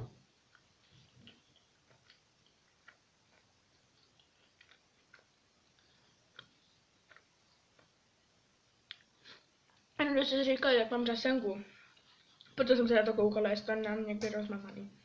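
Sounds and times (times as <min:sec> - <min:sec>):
soft chewing clicks: 0:00.4 - 0:08.1, 0:08.7 - 0:09.9, 0:11.8 - 0:12.6.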